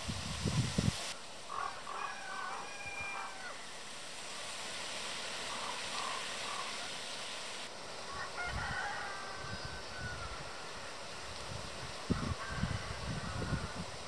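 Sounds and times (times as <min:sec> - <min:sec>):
steady outdoor hiss: 0:00.0 - 0:14.0
rooster crowing: 0:01.5 - 0:03.8, 0:08.1 - 0:10.7, 0:12.1 - 0:14.0.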